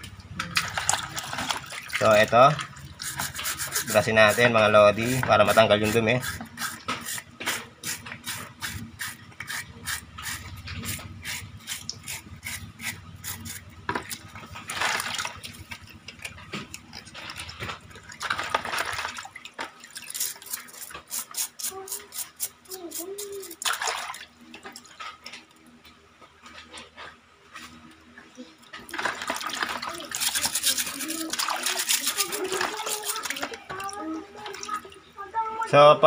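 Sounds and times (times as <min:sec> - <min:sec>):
water sloshing: 0:00.0 - 0:21.9, 0:23.3 - 0:35.7
brush scrubbing rubber seal: 0:03.0 - 0:14.3, 0:20.0 - 0:23.6, 0:30.0 - 0:33.4.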